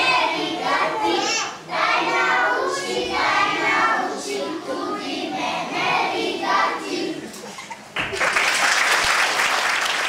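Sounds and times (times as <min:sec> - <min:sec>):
children singing in unison: 0:00.0 - 0:07.3.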